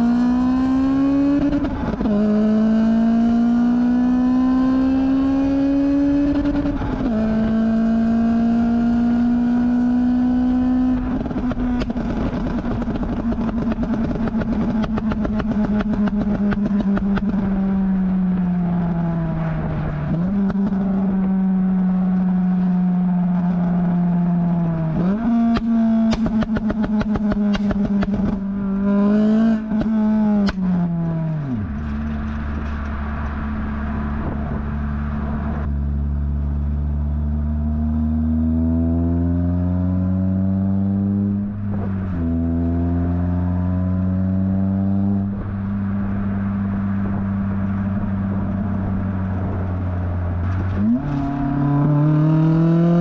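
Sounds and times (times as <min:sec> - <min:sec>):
car exhaust accelerating: 0:00.0 - 0:53.0
exhaust pops and crackles: 0:01.4 - 0:02.2, 0:10.6 - 0:19.0, 0:24.5 - 0:35.8, 0:41.3 - 0:42.5, 0:45.2 - 0:52.1.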